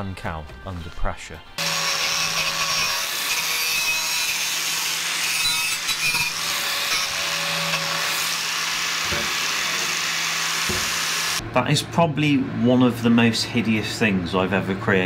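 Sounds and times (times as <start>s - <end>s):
angle grinder grinding steel: 1.6s - 11.4s.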